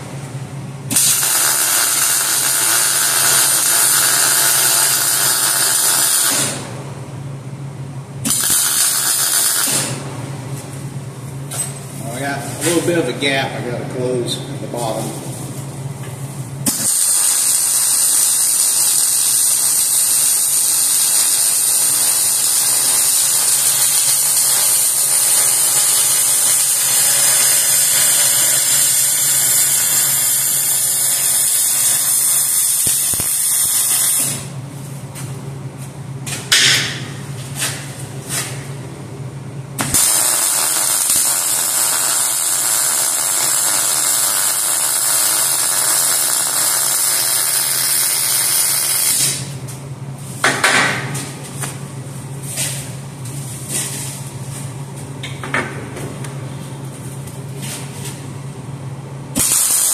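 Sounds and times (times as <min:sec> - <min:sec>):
welding arc hissing: 0:00.9 - 0:06.7, 0:08.2 - 0:10.0, 0:16.6 - 0:34.6, 0:39.8 - 0:49.6, 0:59.4 - 0:59.9.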